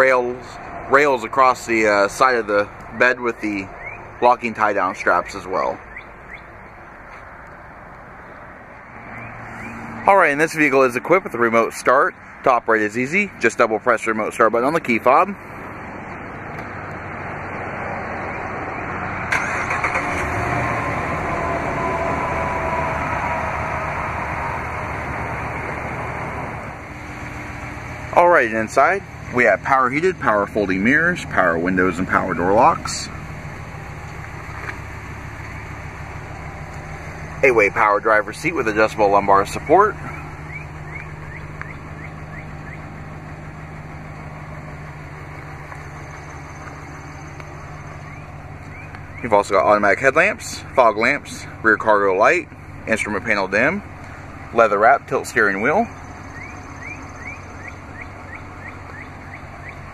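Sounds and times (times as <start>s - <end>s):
engine cranking and idling: 18.8s - 59.9s.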